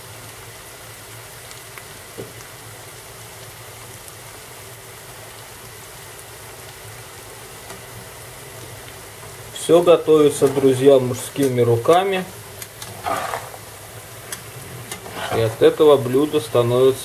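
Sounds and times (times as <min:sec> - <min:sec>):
vegetables sizzling in oil: 0:00.0 - 0:17.0
oil popping: 0:10.2 - 0:15.8.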